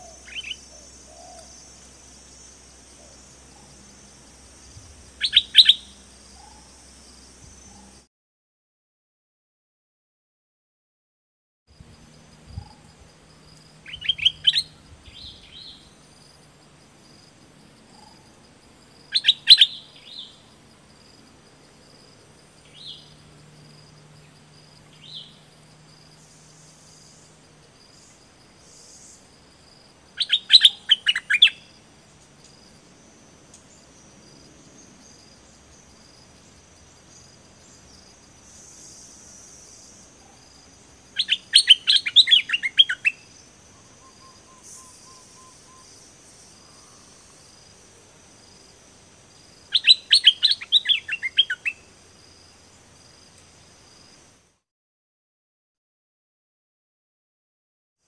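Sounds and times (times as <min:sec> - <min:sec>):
bulbul singing: 0:00.0 - 0:06.9, 0:13.8 - 0:16.0, 0:19.1 - 0:20.5, 0:30.2 - 0:31.7, 0:41.2 - 0:46.0, 0:49.7 - 0:51.8.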